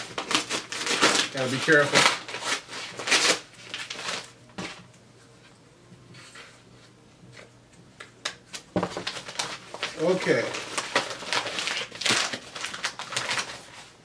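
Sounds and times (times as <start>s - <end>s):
paper mailer rustling: 0.0s - 4.8s, 9.0s - 13.9s.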